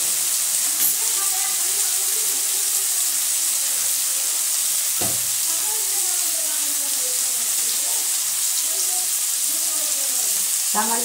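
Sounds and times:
tomatoes sizzling in hot oil: 0.0 - 11.0
knock: 5.0 - 5.3.

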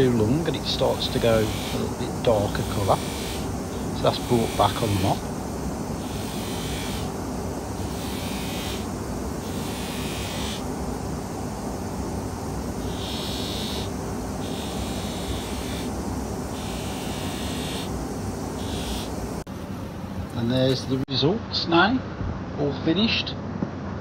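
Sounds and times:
metal tube hissing on mop: 0.0 - 5.3, 12.7 - 19.1
polishing machine motor hum: 0.0 - 19.5.

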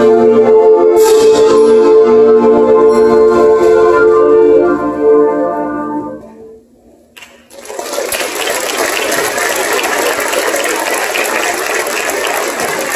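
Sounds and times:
audience applause: 7.2 - 12.9.

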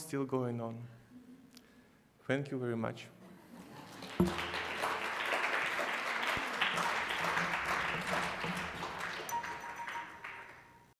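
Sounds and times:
audience applauding: 3.7 - 10.9.

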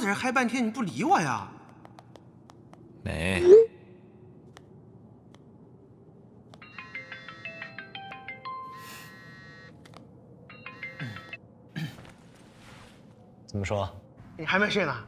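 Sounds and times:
phone ringtone melody: 6.6 - 9.8, 10.5 - 11.4.

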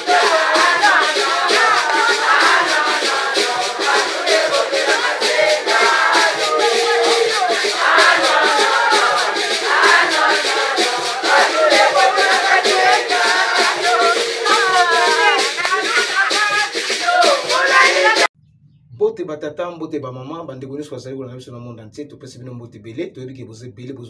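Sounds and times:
upbeat dance music with singing: 0.0 - 18.3.

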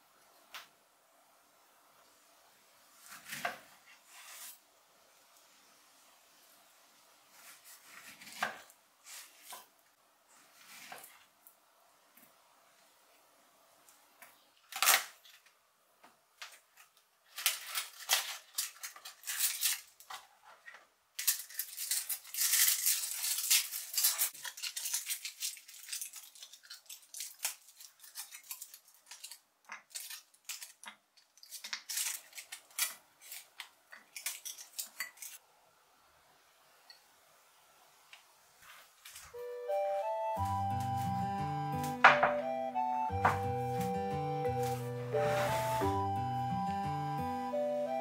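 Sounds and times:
utensils scraping and brushing: 43.7 - 46.0.

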